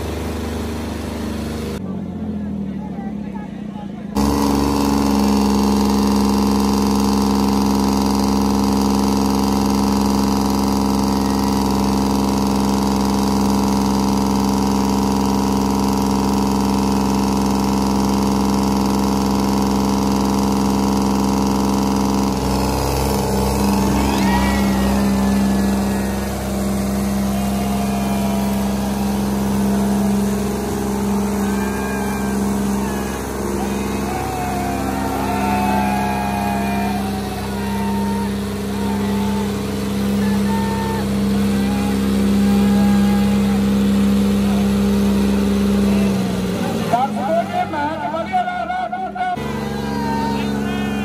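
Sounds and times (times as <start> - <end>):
tractor engines at full throttle: 0.0 - 51.0.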